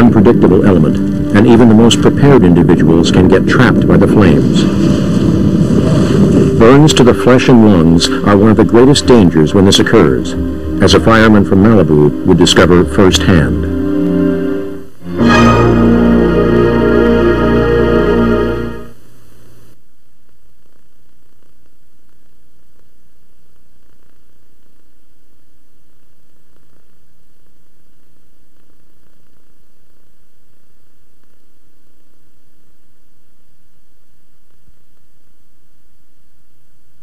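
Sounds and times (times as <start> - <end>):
closing music: 0.0 - 19.0
low hum: 0.0 - 19.8
faint recording hiss: 0.0 - 37.0.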